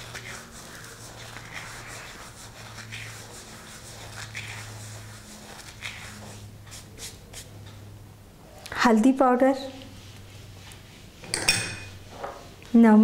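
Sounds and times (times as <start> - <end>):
palms rubbing seeds: 0.0 - 7.5.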